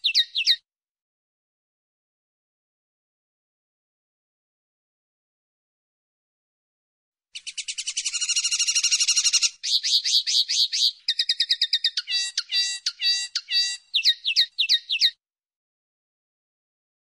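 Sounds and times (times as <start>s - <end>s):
linnet singing trills and chirps: 0.0s - 0.6s, 7.4s - 15.2s.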